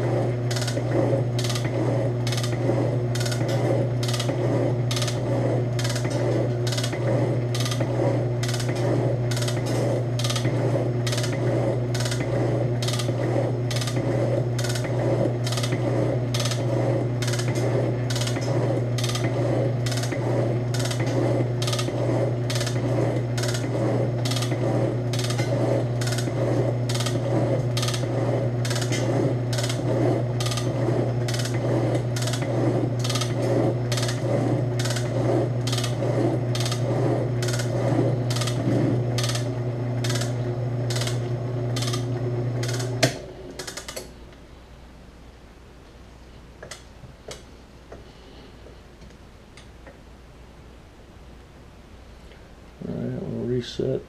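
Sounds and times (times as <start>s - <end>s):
electric motor hum: 0.0s - 44.1s
machine ram clicking: 30.4s - 44.1s.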